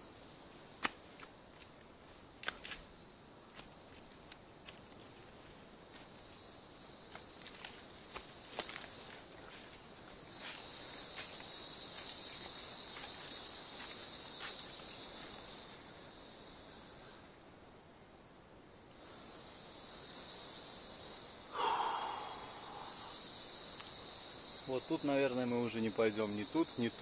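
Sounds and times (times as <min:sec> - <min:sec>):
insect chorus buzzing: 0:00.0 - 0:27.0
footsteps crunching dry leaves: 0:07.4 - 0:15.4.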